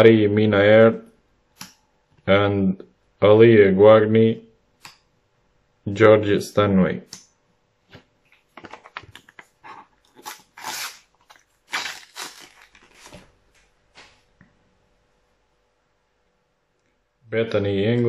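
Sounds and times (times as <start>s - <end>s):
wrapper crinkling and tearing: 10.1s - 13.3s
stickers shuffled: 11.7s - 13.3s.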